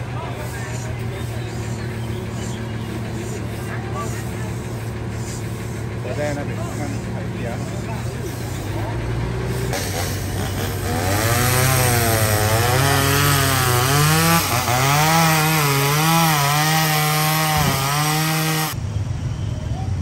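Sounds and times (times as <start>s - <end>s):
low steady engine hum: 0.0s - 12.8s
chainsaw cutting wood: 9.7s - 18.8s.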